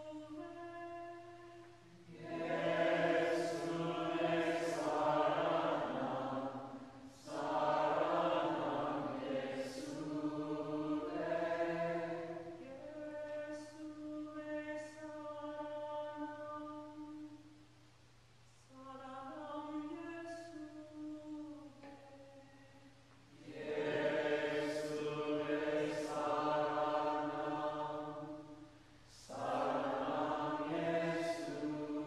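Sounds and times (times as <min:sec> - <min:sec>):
group chanting a hymn: 0:00.0 - 0:00.7, 0:01.8 - 0:17.3, 0:23.3 - 0:32.0.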